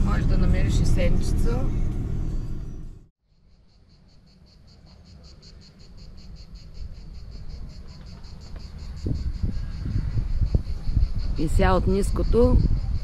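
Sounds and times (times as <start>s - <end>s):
low rumble: 0.0s - 3.1s
insects chirping: 3.3s - 13.0s.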